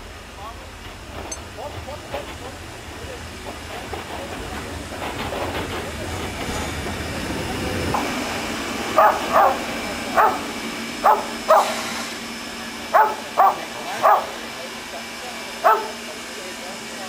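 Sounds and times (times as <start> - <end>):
steam locomotive hissing and rumbling: 0.0 - 17.0
dog barking: 9.0 - 11.8, 12.9 - 14.4, 15.6 - 16.0.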